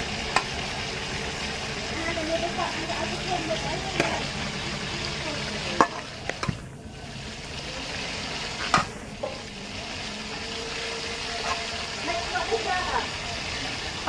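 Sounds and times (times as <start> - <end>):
fish frying in oil: 0.0 - 14.0.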